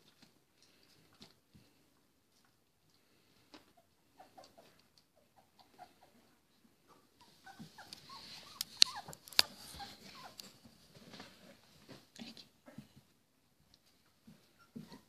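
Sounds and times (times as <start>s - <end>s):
puppies squeaking and whimpering: 7.2s - 10.6s, 14.4s - 15.0s.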